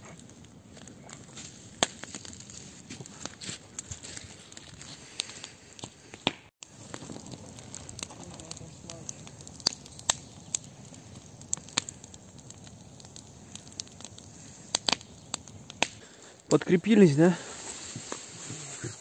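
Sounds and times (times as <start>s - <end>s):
wood fire crackling: 0.0s - 19.0s
sharp pops: 5.2s - 16.6s.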